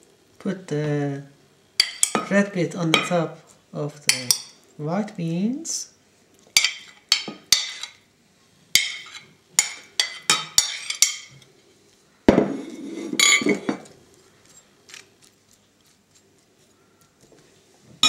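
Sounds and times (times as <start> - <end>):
metal spoon clinking on dishes: 1.8 - 2.3, 4.1 - 4.6, 6.6 - 8.0, 8.8 - 11.4, 13.1 - 13.9
knock and scrape: 12.3 - 13.9.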